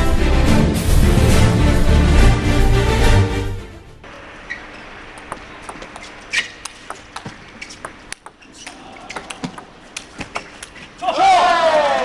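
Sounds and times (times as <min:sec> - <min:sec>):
shoe squeak: 0:04.4 - 0:09.6
ping pong ball clicking: 0:05.1 - 0:10.5.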